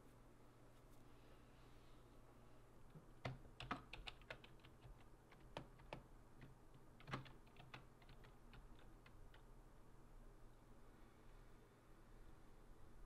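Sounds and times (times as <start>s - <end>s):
keyboard typing: 3.2s - 9.5s.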